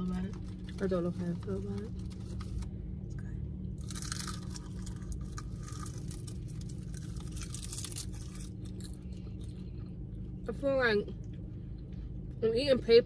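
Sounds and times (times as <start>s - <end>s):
seaweed snack crunching: 3.8s - 9.6s.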